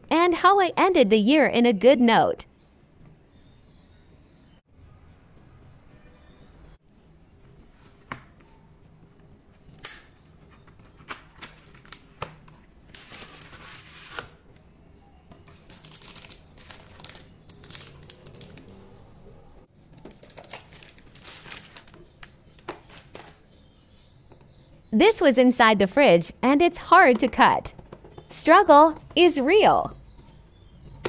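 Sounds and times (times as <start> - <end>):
foil and paper crinkling: 12.9 - 14.2, 15.5 - 18.7, 20.0 - 23.4.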